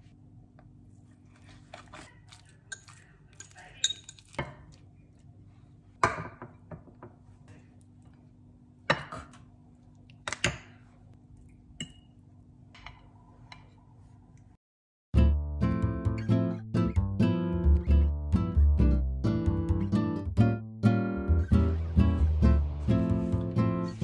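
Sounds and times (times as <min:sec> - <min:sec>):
utensils clinking on ceramic dishes: 0:01.8 - 0:04.7
acoustic guitar music: 0:15.2 - 0:24.0.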